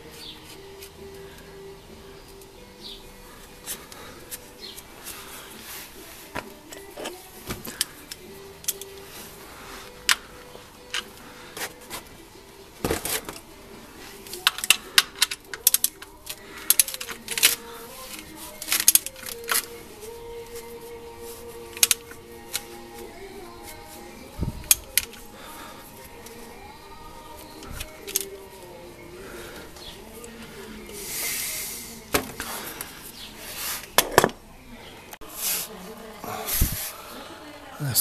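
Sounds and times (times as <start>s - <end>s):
hand tools clicking and knocking: 10.0s - 12.1s, 14.2s - 19.8s, 21.7s - 23.0s, 23.6s - 26.5s, 27.2s - 28.6s.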